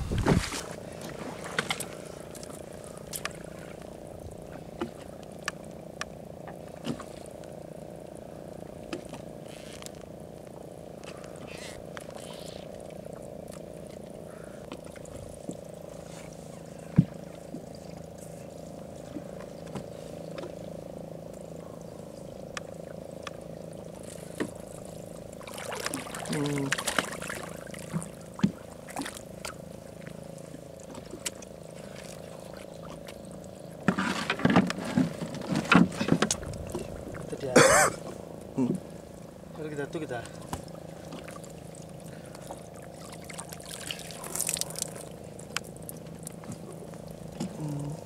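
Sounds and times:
low motor hum: 0.0s - 48.0s
fish splashing in water: 23.8s - 30.1s, 40.6s - 46.7s.

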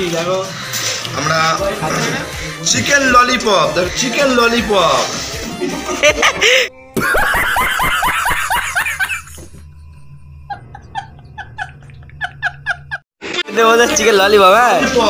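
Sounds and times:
man laughing hard: 5.5s - 9.4s, 10.5s - 13.0s.

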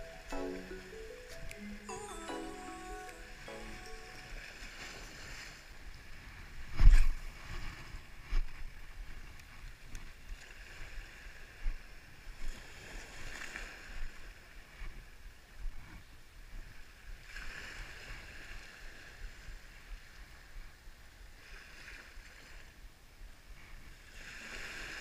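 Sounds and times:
small waves lapping on pebbles: 9.2s - 14.7s, 23.9s - 25.0s.

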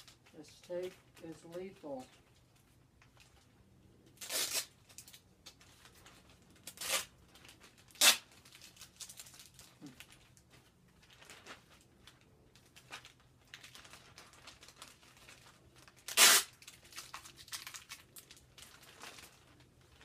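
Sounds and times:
plastic and tape crinkling: 0.0s - 20.0s
loud tearing: 4.2s - 4.7s, 6.7s - 7.1s, 7.9s - 8.3s, 16.0s - 17.0s.

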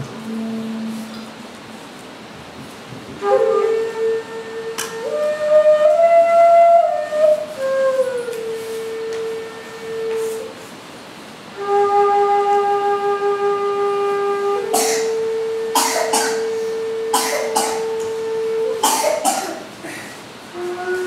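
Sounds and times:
bamboo flute long notes: 0.0s - 2.1s, 2.7s - 10.8s, 11.4s - 21.0s
breathy puffs of air: 16.3s - 17.6s, 19.7s - 20.4s.

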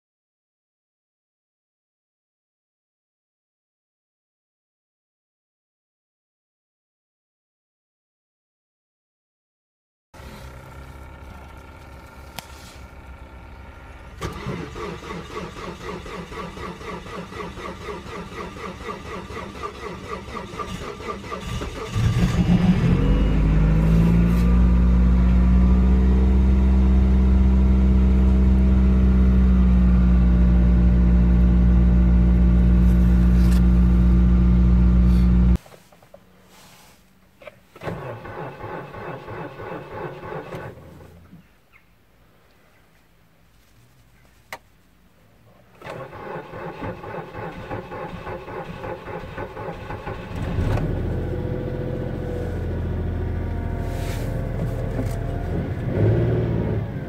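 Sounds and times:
car engine fast idle: 10.2s - 22.8s
quieter starter cranking: 14.1s - 22.7s, 45.8s - 50.9s
car starter cranking: 14.1s - 23.0s, 37.7s - 41.0s, 45.8s - 51.1s.

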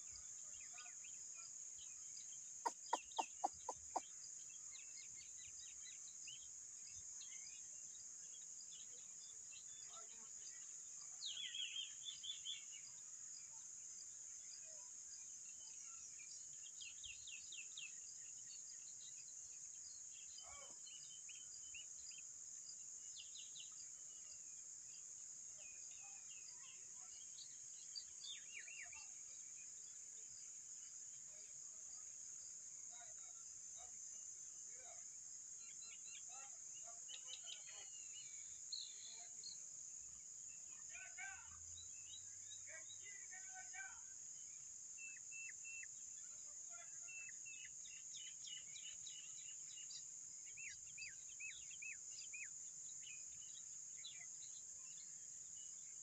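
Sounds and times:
bird calls: 2.6s - 4.2s.

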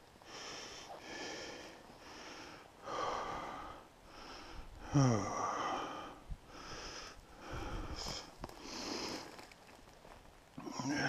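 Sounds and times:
person breathing heavily: 0.2s - 9.4s, 10.6s - 11.0s.

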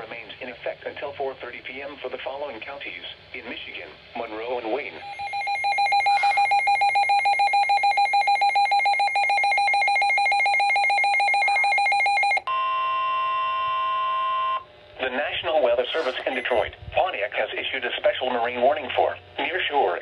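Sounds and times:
rapid pulsing alarm beeps: 5.0s - 12.7s, 15.9s - 16.7s
steady warning tone: 5.0s - 19.6s.

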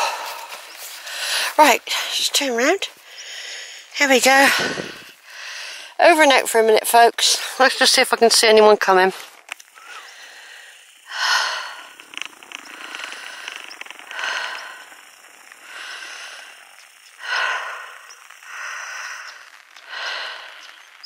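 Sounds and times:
person breathing close to microphone: 0.0s - 1.6s, 3.0s - 6.0s, 9.7s - 21.0s.

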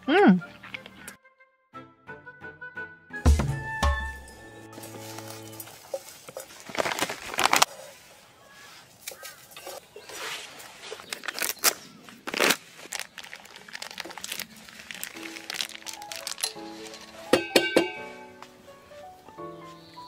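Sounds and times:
dry food crumbled into metal bowls: 4.7s - 8.0s, 10.8s - 18.0s
plastic pouch crinkling: 4.8s - 8.1s, 9.0s - 17.4s.

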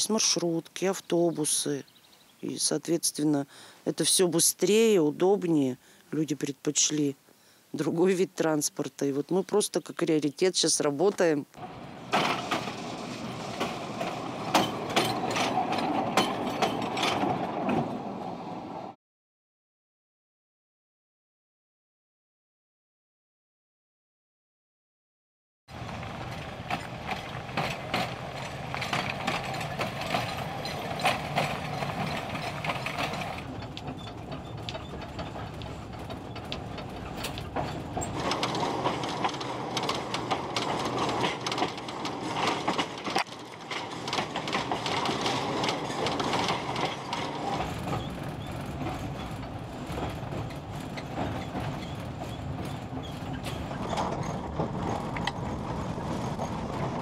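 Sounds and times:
rail clacks and rattles: 11.6s - 18.9s, 25.7s - 57.0s
tram running on rails: 11.6s - 19.0s, 25.7s - 57.0s.

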